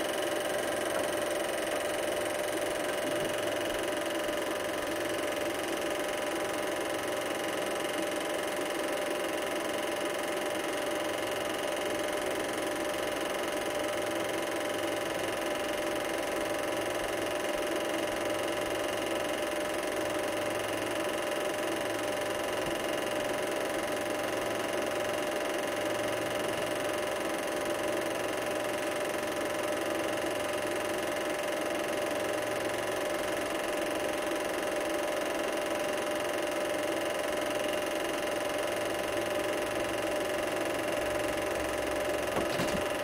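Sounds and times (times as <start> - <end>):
film projector whirring: 0.0 - 43.0.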